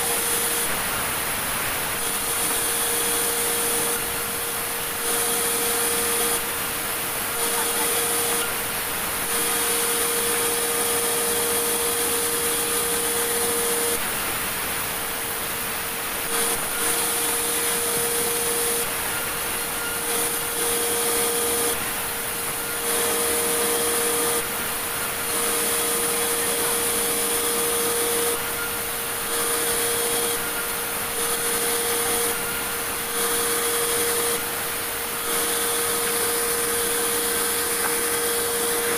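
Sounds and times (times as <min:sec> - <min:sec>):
band saw sawing boards: 0:16.3 - 0:38.9.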